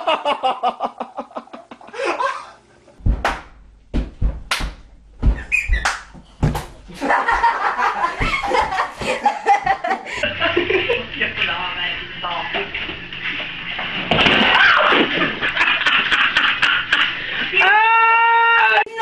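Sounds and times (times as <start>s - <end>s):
people laughing loudly: 0.0s - 2.6s, 6.9s - 11.4s, 14.4s - 17.8s
sharp slaps and thuds: 3.0s - 6.8s
people shouting: 17.5s - 19.0s.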